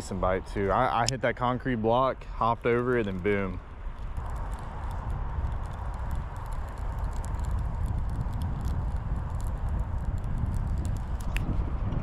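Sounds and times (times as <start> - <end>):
wind buffeting microphone: 0.0 - 12.0
faint ticks: 3.9 - 11.5.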